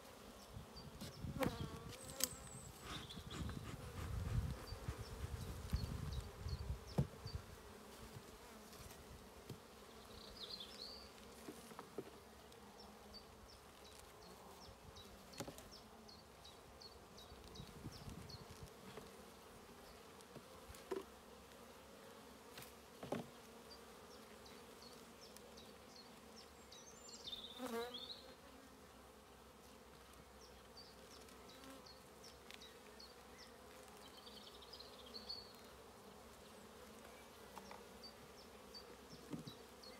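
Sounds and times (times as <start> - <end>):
bees humming: 23.4 - 29.4.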